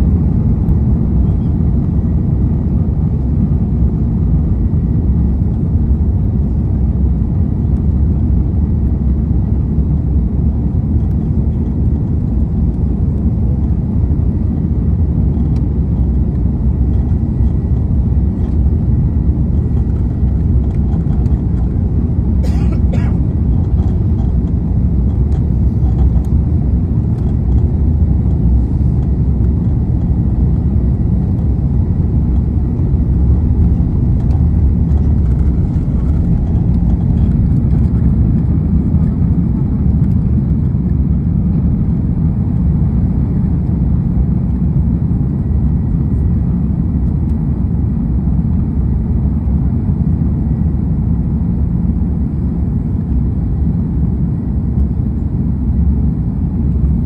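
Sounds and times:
jet engines at takeoff thrust: 0.0 - 57.0
runway rumble: 15.4 - 41.0.

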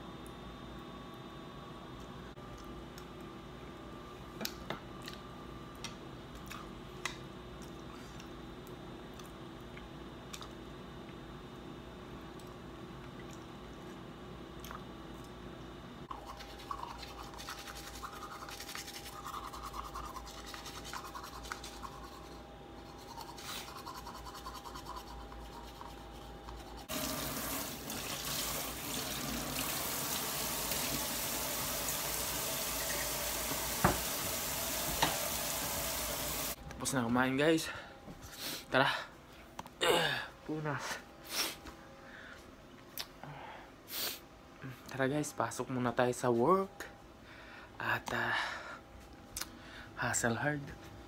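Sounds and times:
teeth brushing: 16.1 - 26.9
tap water running into sink: 26.9 - 36.6.

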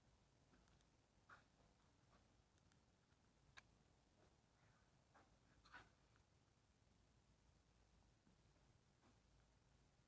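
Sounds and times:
soft ticks: 2.5 - 3.7.

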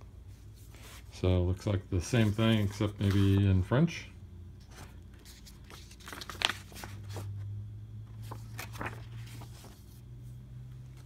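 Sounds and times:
paper rustling: 0.4 - 3.6, 4.6 - 11.0.

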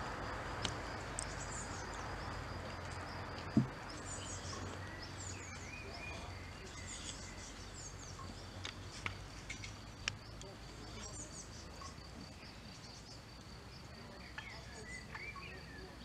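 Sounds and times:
birds chirping: 0.0 - 16.0
insect trill: 0.0 - 16.0
low thump: 3.5 - 3.9.

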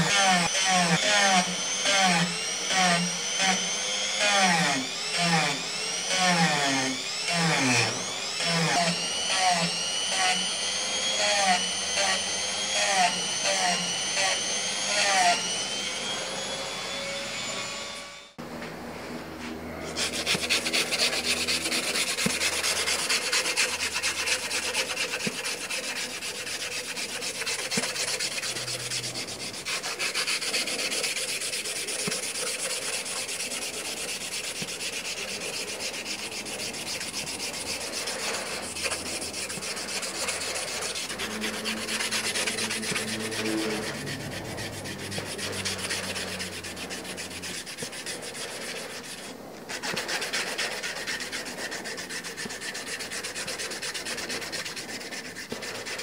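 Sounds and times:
sandpaper scratching on knife handle: 19.8 - 56.0.

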